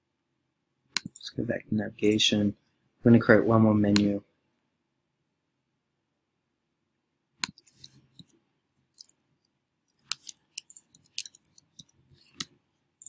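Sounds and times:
computer mouse clicks: 0:07.4 - 0:07.6.

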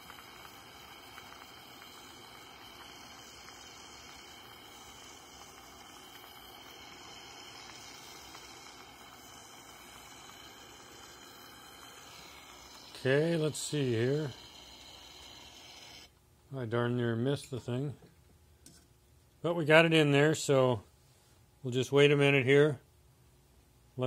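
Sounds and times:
gas torch flame hissing: 0:00.0 - 0:16.1.

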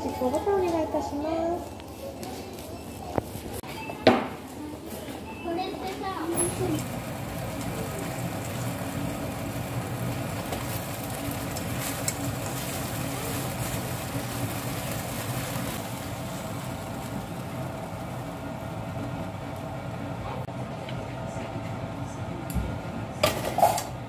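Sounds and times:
constant mechanical hum: 0:00.0 - 0:24.0
vegetables sizzling in a wok: 0:06.2 - 0:20.4.

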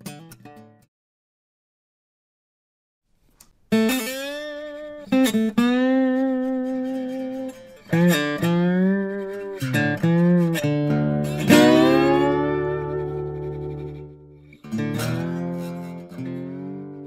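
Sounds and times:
slide guitar notes: 0:03.7 - 0:17.0.

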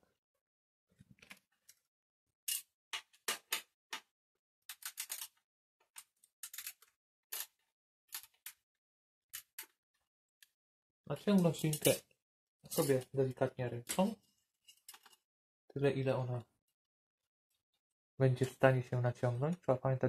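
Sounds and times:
light metallic clicks and scrapes: 0:11.4 - 0:12.0.

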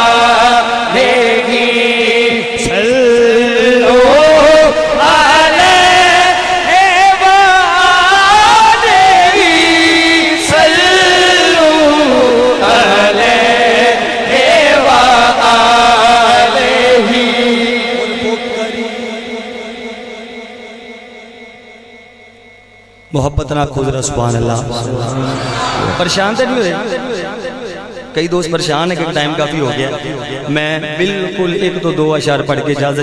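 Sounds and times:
man singing into a microphone: 0:00.0 - 0:20.9.

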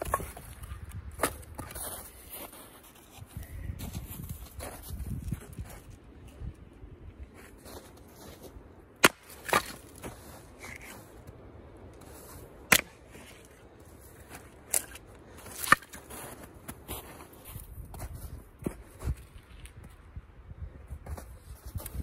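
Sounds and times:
maul cracking firewood: 0:09.0 - 0:11.0, 0:12.6 - 0:13.6, 0:14.2 - 0:16.4.

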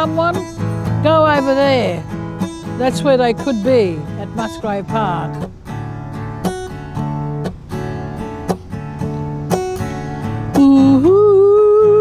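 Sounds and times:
acoustic guitar strumming: 0:00.0 - 0:12.0
woman singing wordless note: 0:10.6 - 0:12.0.

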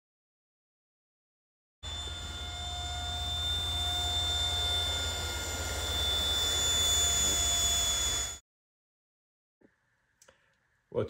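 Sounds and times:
electric ducted fan whine: 0:01.8 - 0:08.4.

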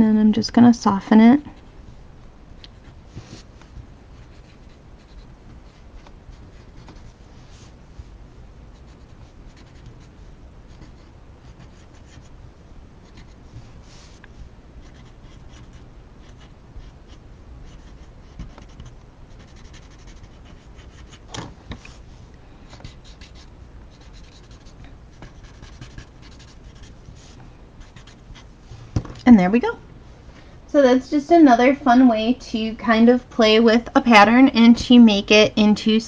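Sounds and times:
blending stump scratching on paper: 0:14.8 - 0:21.3, 0:22.8 - 0:28.5.

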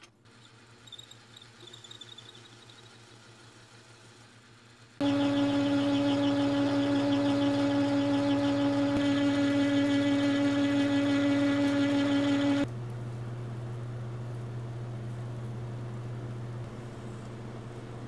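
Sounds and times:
metal lathe whining: 0:05.0 - 0:12.7.

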